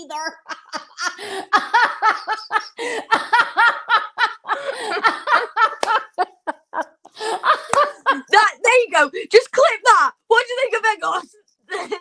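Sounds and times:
women laughing: 0:00.2 - 0:08.5, 0:11.7 - 0:12.0.

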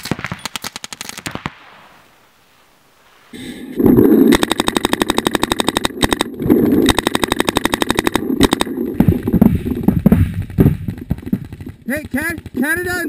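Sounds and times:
paintball marker rapid firing: 0:00.0 - 0:01.4, 0:04.3 - 0:08.7, 0:10.0 - 0:13.0
irregular knocks: 0:09.0 - 0:12.6.

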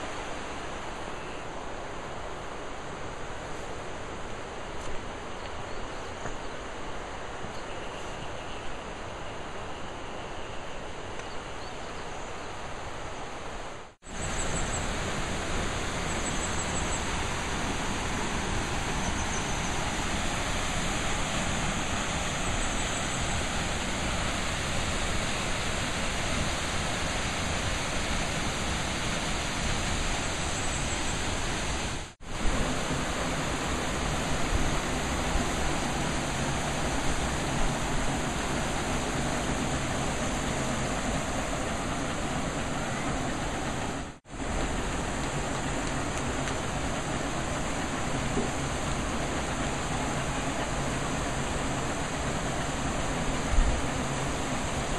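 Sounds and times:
river running over rocks: 0:12.5 - 0:54.9.

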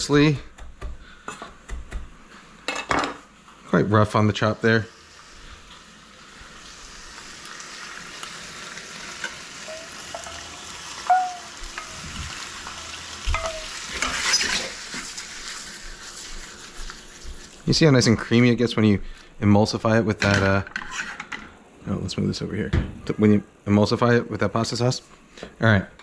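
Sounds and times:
pasta sizzling in a skillet: 0:02.1 - 0:18.6
spoon squeaking: 0:09.6 - 0:10.4, 0:11.0 - 0:12.0, 0:13.4 - 0:13.7
spoon knocking on pan: 0:09.7 - 0:10.4
wooden spoon scraping a pan: 0:11.7 - 0:18.2, 0:20.7 - 0:21.3.

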